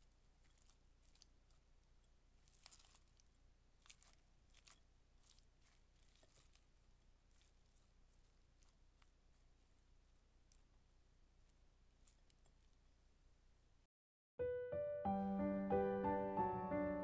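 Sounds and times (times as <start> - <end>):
spatula tossing salad in glass bowl: 0.0 - 9.8.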